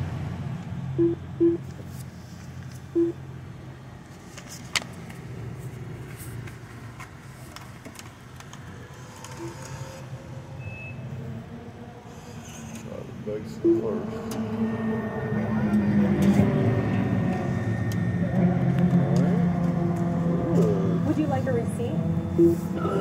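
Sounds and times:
pay station beeping: 1.0s - 1.6s, 2.9s - 3.2s, 9.3s - 10.0s, 13.6s - 15.7s, 22.4s - 23.0s.

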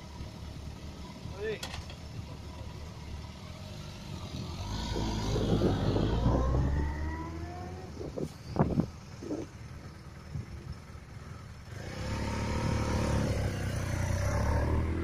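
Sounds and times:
motorcycle engine accelerating: 2.3s - 15.0s.

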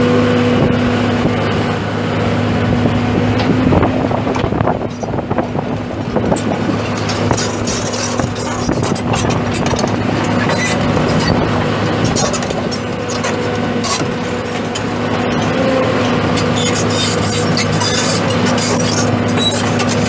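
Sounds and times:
diesel excavator engine running: 0.0s - 20.0s
sharp clicks and clanks: 6.3s - 11.4s, 12.0s - 15.5s, 16.4s - 20.0s.

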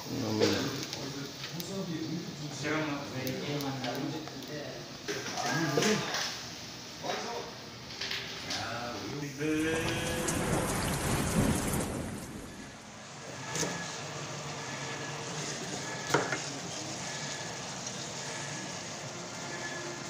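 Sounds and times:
thunder rumbling: 9.5s - 13.1s
meat sizzling in a wok: 13.0s - 20.0s.

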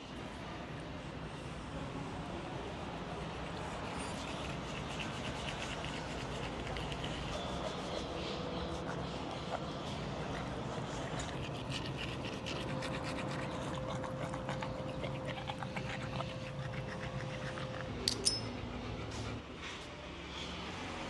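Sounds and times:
dog panting and licking: 3.2s - 19.9s
metal leash buckle clicks: 18.0s - 18.6s.

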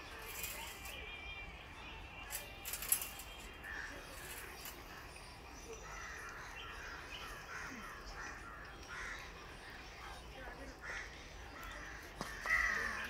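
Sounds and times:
crows cawing: 5.8s - 9.9s, 10.8s - 13.0s.

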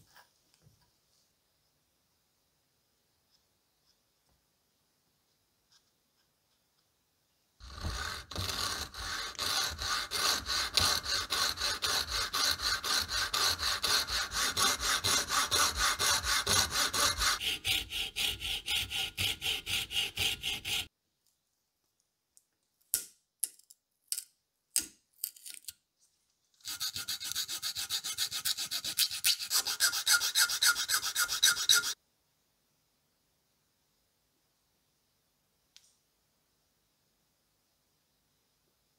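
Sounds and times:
file rasping on wood: 7.6s - 20.9s, 26.6s - 32.0s
saw sawing wood: 7.6s - 20.9s, 26.6s - 32.0s.

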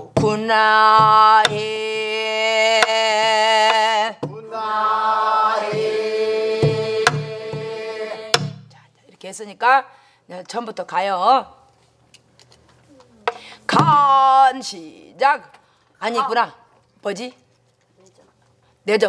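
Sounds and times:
women singing folk song in unison: 0.0s - 8.7s
barrel drum strokes and thumps: 5.6s - 8.7s.

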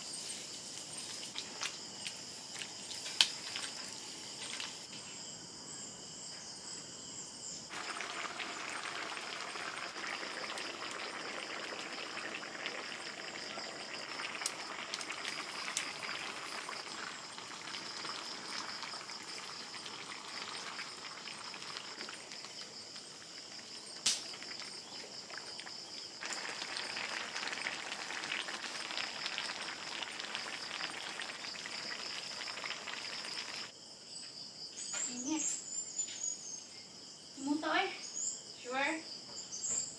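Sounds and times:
crickets chirring: 0.0s - 39.9s.

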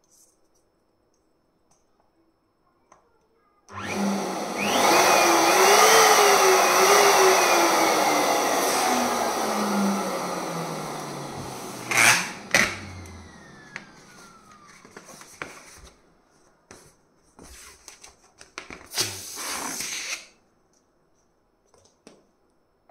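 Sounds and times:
electric pump motor winding down: 3.7s - 15.0s
rubber balloon squeak: 18.9s - 20.3s.

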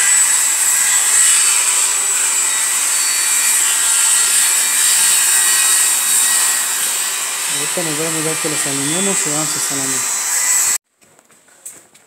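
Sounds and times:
motor running with high hiss: 6.6s - 10.8s.

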